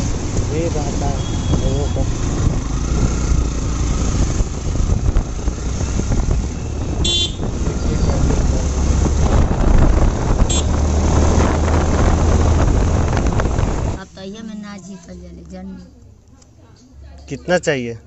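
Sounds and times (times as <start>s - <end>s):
motorcycle engine running: 0.0s - 14.0s
road and wind noise: 0.0s - 18.0s.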